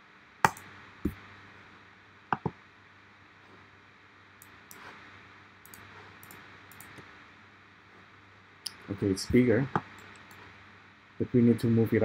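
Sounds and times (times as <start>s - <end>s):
low steady hum: 0.0s - 12.0s
mouse and keyboard clicks: 5.7s - 7.0s.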